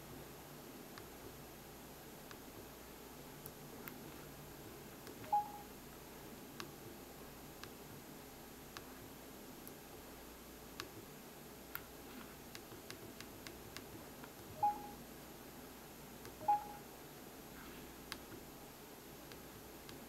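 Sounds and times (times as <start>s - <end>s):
short electronic beeps: 5.3s - 5.7s, 14.6s - 15.0s, 16.4s - 16.8s.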